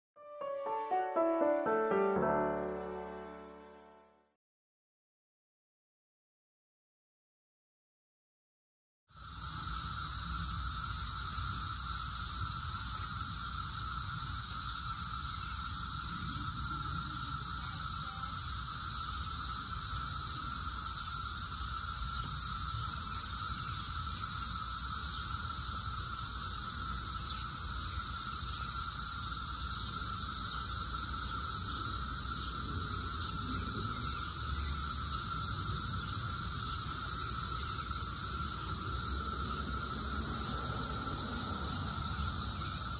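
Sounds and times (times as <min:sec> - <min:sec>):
cicadas droning: 0:09.1 - 0:42.9
high cicada hiss: 0:09.1 - 0:42.9.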